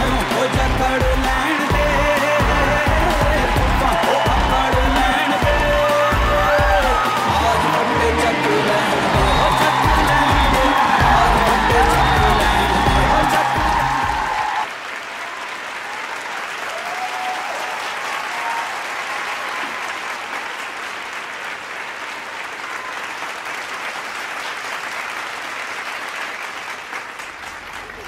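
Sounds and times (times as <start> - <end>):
music: 0.0 - 14.7
crowd applauding: 0.0 - 28.0.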